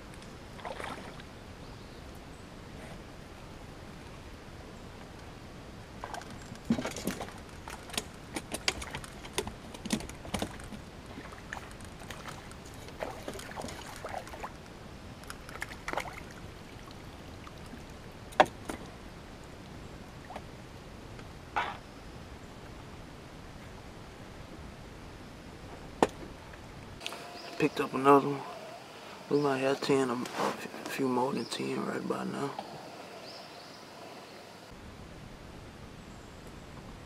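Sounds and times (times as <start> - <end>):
fishing tackle clicks and rattles: 6.2 - 10.8.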